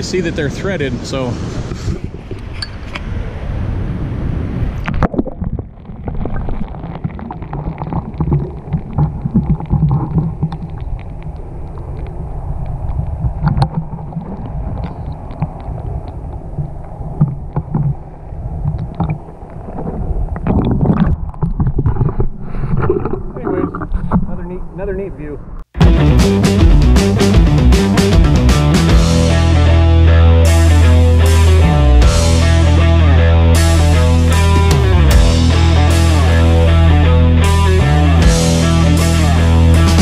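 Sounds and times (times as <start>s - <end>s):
underwater river rumble and gurgle: 1.5s - 24.7s
underwater clicks: 4.8s - 24.4s.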